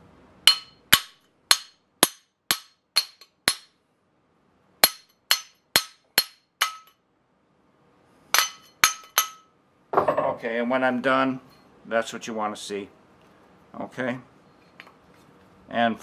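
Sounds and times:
hammer tapping metal: 0:00.5 - 0:03.8, 0:04.8 - 0:07.0, 0:08.3 - 0:09.5.

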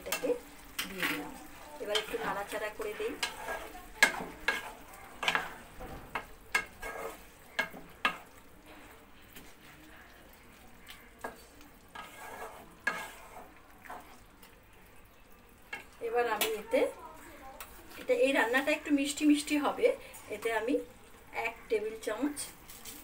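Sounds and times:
wooden spatula scraping a pan: 0:00.0 - 0:09.8, 0:11.2 - 0:14.3
food sizzling: 0:00.0 - 0:23.0.

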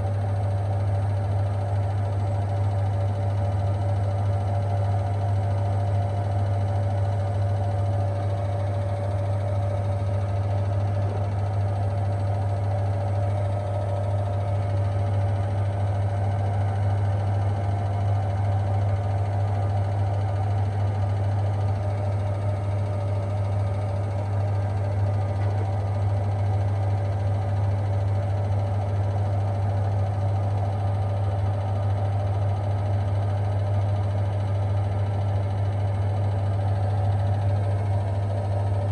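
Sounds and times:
washing machine spinning: 0:00.0 - 0:38.9.

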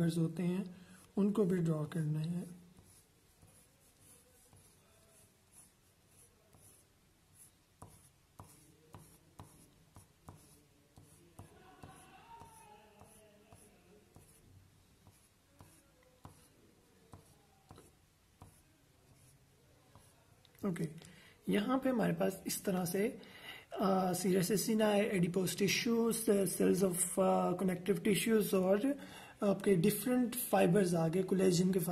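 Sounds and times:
pencil scratching on paper: 0:00.8 - 0:01.6, 0:02.4 - 0:20.2.

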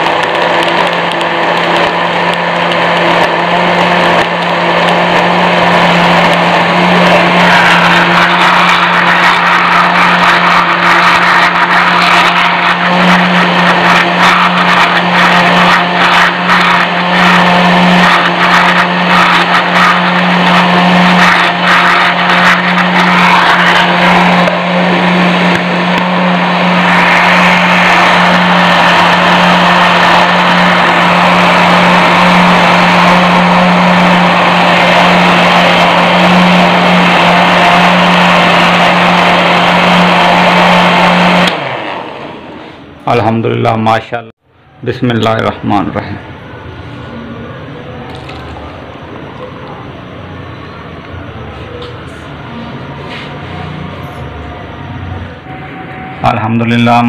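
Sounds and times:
blender motor whirring: 0:00.0 - 0:43.4, 0:48.1 - 0:49.8.

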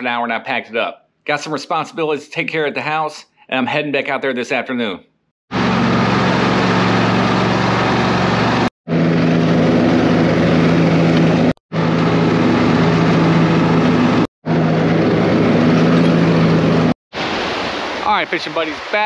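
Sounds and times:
riding lawn mower engine: 0:05.5 - 0:16.9.

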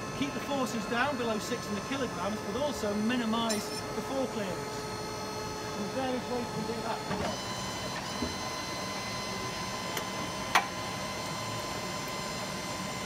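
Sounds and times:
busy exhibition hall hum: 0:00.0 - 0:13.0.

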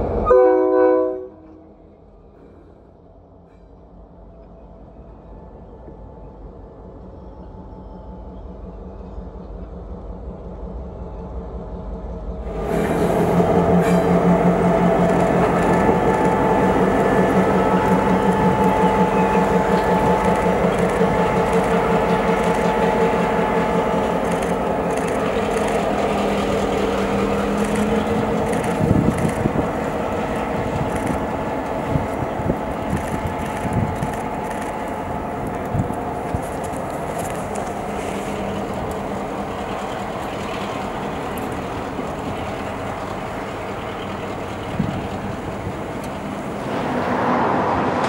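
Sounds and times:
low train rumble: 0:00.0 - 0:48.0
train engine drone: 0:00.0 - 0:48.0
wheels clicking over rails: 0:12.5 - 0:48.0.

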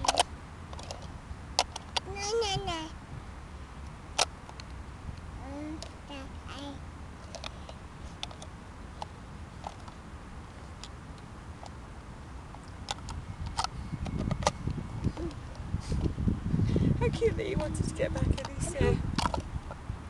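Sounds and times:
wind rumble on microphone: 0:00.0 - 0:04.2, 0:12.4 - 0:20.0.

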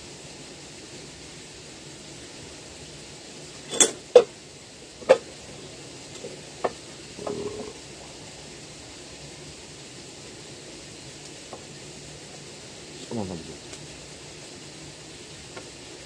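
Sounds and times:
background hiss: 0:00.0 - 0:16.0
sharp snaps and clicks: 0:13.7 - 0:13.9.

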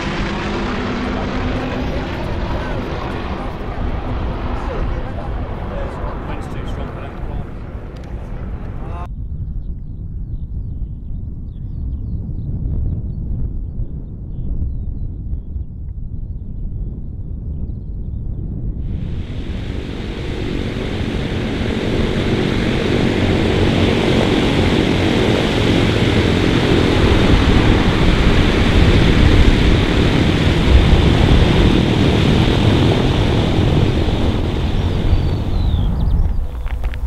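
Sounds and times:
piston aircraft engines droning: 0:00.0 - 0:09.1, 0:18.9 - 0:37.0.

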